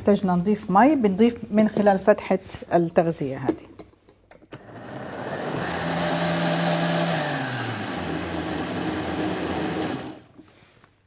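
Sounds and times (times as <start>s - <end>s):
blender motor running: 4.6s - 10.4s.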